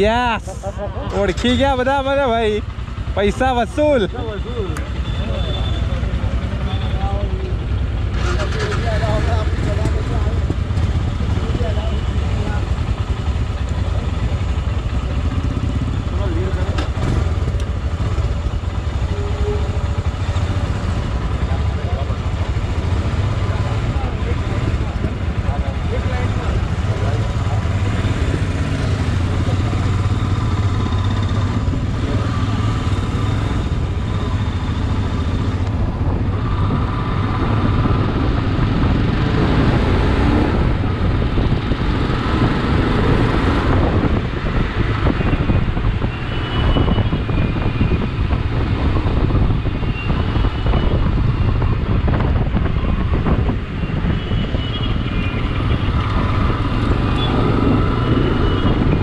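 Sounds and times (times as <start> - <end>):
passing motorcycles and trucks: 0.0 - 59.0
motorcycle engine running: 4.0 - 59.0
wind noise on microphone: 35.6 - 59.0.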